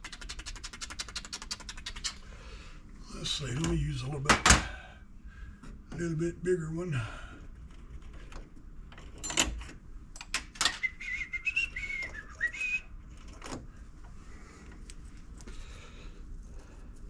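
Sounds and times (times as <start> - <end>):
man whistling: 10.7 - 12.9.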